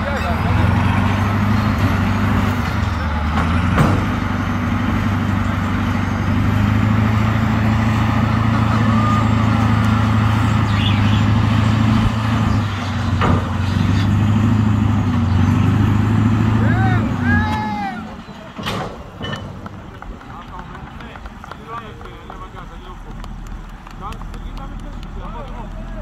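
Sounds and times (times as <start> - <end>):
bulldozer diesel engine running: 0.0 - 26.0.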